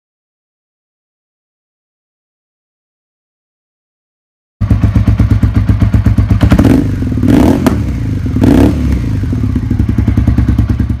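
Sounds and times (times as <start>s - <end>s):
motorcycle engine idling: 4.6s - 11.0s
motorcycle engine revving: 4.6s - 11.0s.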